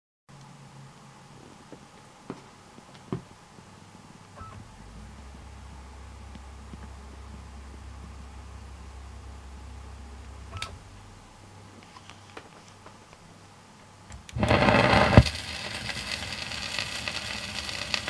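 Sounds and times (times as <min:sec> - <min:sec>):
record surface hiss and crackle: 0:00.3 - 0:18.0
low hum: 0:03.4 - 0:18.0
stylus dropping on record: 0:04.3 - 0:08.9, 0:09.5 - 0:13.3, 0:14.1 - 0:18.0.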